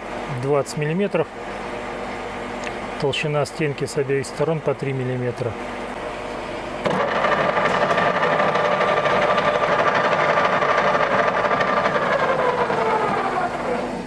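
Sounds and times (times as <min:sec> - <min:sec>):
metal lathe cutting with ringing tone: 0:07.0 - 0:14.0.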